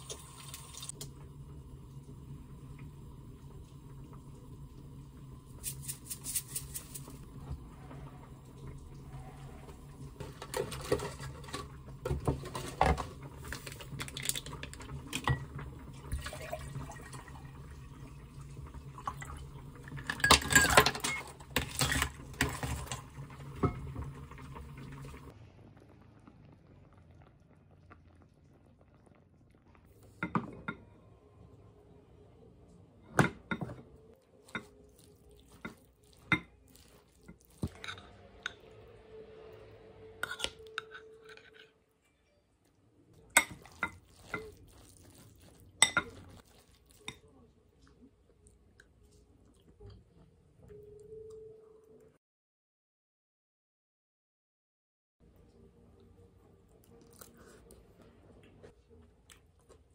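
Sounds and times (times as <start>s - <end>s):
spatula and dishes clinking: 10.2s - 14.5s, 19.9s - 23.0s, 33.1s - 38.7s, 40.2s - 41.8s, 43.3s - 47.3s
water poured over ice: 16.1s - 17.6s.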